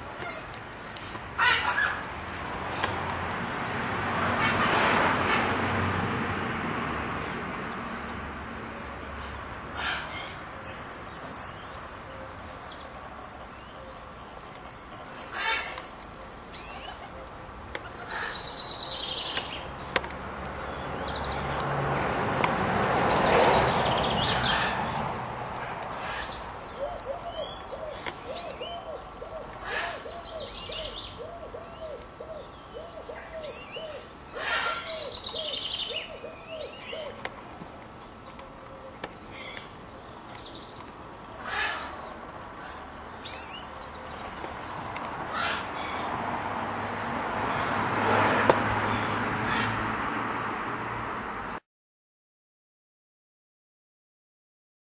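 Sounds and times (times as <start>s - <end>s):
birds chirping: 7.5s - 21.9s, 22.9s - 50.1s.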